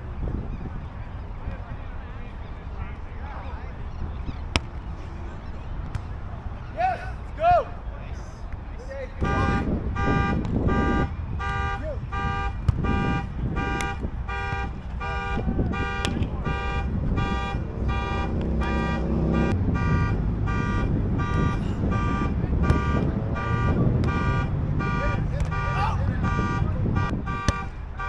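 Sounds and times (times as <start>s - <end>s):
low background rumble: 0.0s - 28.0s
car alarm beeping: 9.2s - 28.0s.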